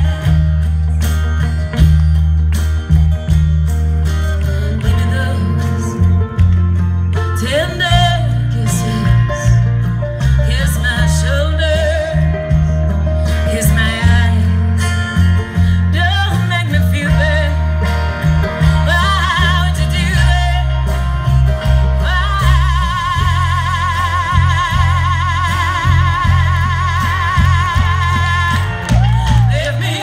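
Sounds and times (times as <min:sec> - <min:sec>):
acoustic guitar: 0:00.0 - 0:30.0
banjo: 0:00.0 - 0:30.0
low bass notes: 0:00.0 - 0:30.0
person singing with vibrato: 0:18.5 - 0:30.0.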